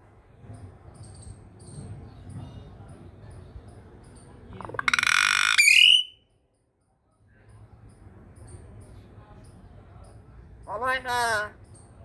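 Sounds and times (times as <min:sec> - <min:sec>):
myna bird harsh call: 0:04.8 - 0:06.2.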